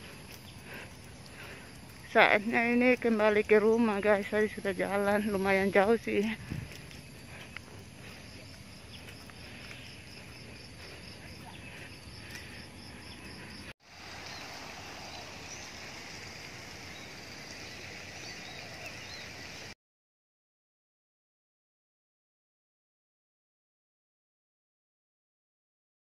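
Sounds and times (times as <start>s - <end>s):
insects chirping: 0.0s - 19.8s
steady hiss: 13.8s - 19.7s.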